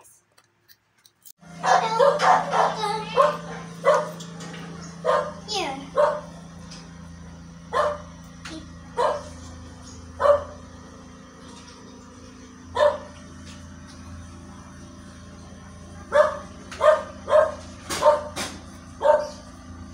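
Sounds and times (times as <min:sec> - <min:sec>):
dog barking: 0:01.6 - 0:04.2, 0:05.0 - 0:06.3, 0:07.7 - 0:08.1, 0:09.0 - 0:09.4, 0:10.2 - 0:10.6, 0:12.8 - 0:13.1, 0:16.1 - 0:18.4, 0:19.0 - 0:19.4.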